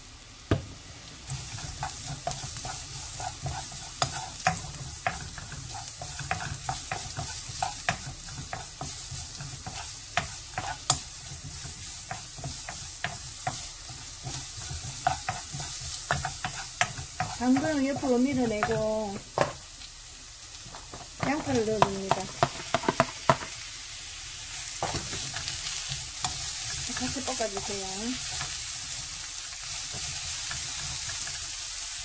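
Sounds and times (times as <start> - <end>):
carrots sizzling in oil: 0.0 - 32.0
wooden spatula scraping a pan: 1.3 - 19.6.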